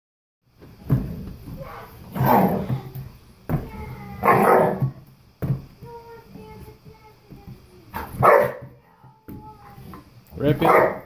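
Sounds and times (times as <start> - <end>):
dogs growling: 1.6 - 3.0
dogs barking: 4.2 - 4.9, 8.0 - 8.8, 10.5 - 11.0.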